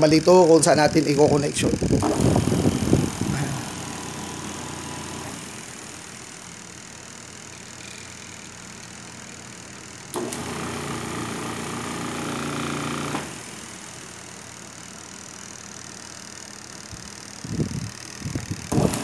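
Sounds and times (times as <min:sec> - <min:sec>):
washing machine motor hum: 0:00.0 - 0:19.0.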